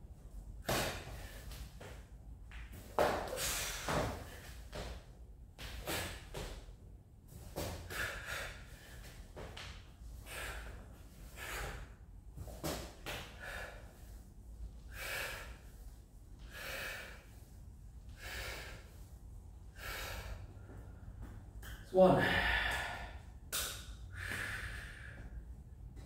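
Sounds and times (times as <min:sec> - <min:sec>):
man breathing hard: 0:03.2 - 0:04.8, 0:07.8 - 0:09.4, 0:10.1 - 0:12.0, 0:13.2 - 0:21.5, 0:22.2 - 0:25.8.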